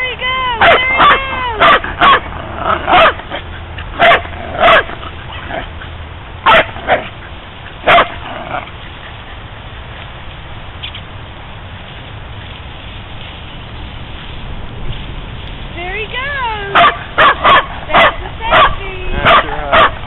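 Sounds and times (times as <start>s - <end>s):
small dog barking: 0.6s - 2.3s, 2.9s - 3.2s, 4.0s - 5.5s, 6.4s - 7.1s, 7.8s - 8.2s, 16.7s - 20.0s.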